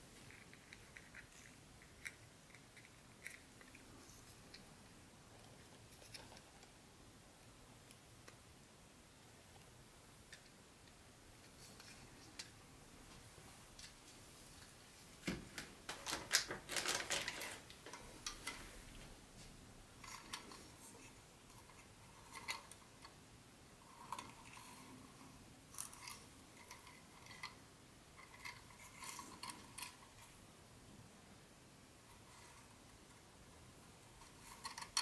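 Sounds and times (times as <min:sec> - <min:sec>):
plastic parts clicking: 0:15.6 - 0:18.6
packaging rustling: 0:15.9 - 0:18.6.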